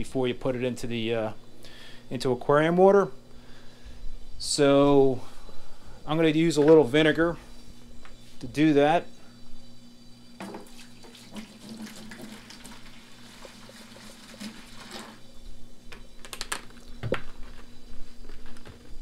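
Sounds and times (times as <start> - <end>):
liquid splashing into bucket: 10.4 - 15.2.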